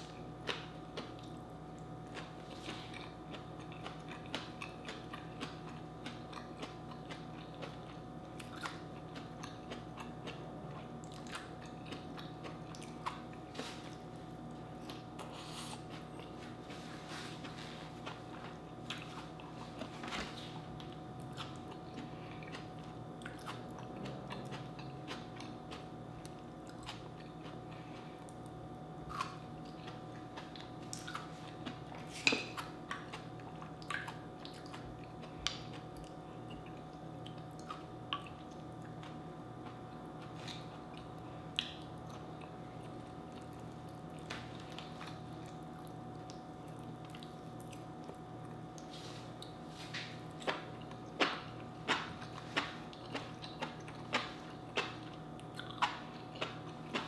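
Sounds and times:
faint steady hum: 0.0s - 57.0s
person chewing food: 0.0s - 57.0s.

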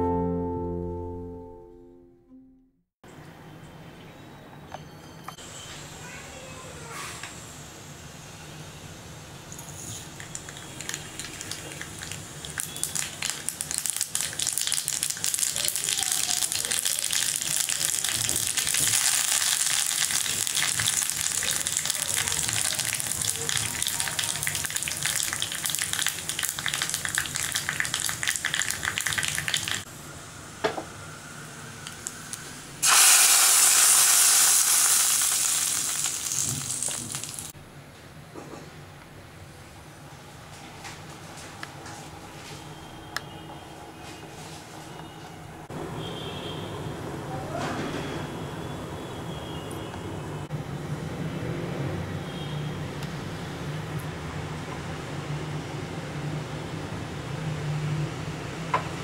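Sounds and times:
spices sizzling in hot oil: 9.5s - 29.9s, 31.8s - 37.5s
loud hiss of liquid hitting oil: 32.8s - 37.5s.

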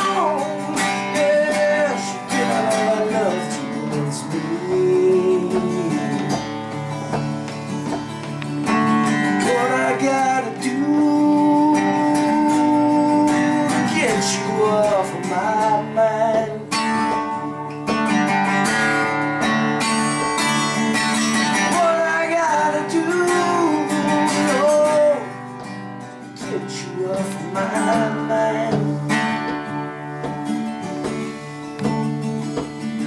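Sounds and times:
man singing: 0.0s - 7.2s, 9.0s - 18.3s, 20.6s - 30.4s
acoustic guitar strumming: 0.0s - 33.0s.

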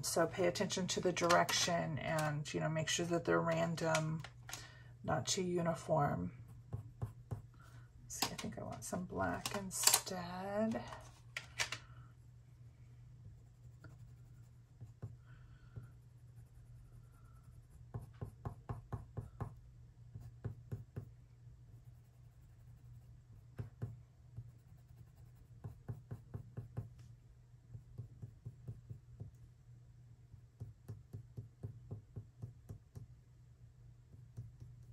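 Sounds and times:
faint low hum: 0.0s - 34.9s
pencil ticking on paper: 6.5s - 7.5s, 13.2s - 21.1s, 21.7s - 26.9s, 27.7s - 29.4s, 30.6s - 33.1s, 34.1s - 34.9s.

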